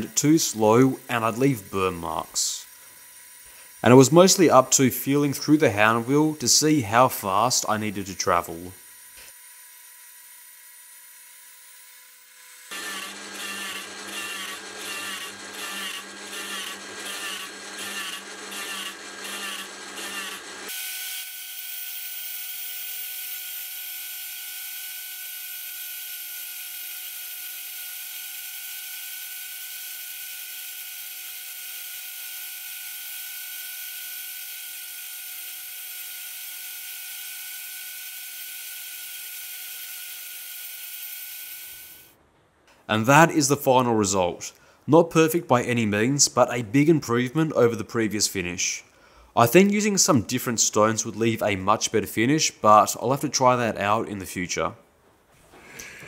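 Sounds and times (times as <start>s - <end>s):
tool post grinder grinding steel: 0.0s - 42.1s.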